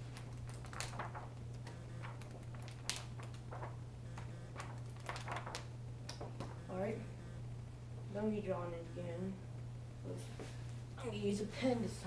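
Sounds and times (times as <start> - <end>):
paper pages flicking and rustling: 0.0 - 6.6
steady low hum: 0.0 - 12.0.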